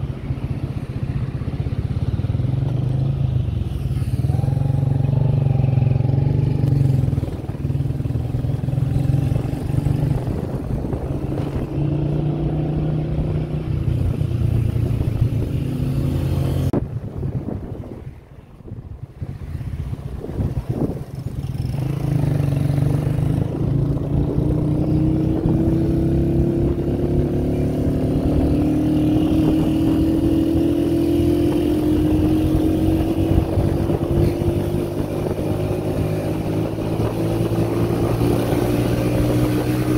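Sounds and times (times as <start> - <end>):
motorcycle engine running: 0.0 - 16.8.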